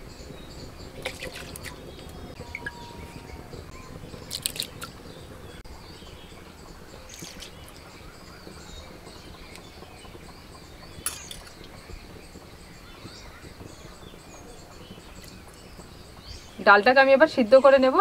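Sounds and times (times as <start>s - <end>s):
birds chirping: 0.0s - 18.0s
low steady rumble: 0.0s - 18.0s.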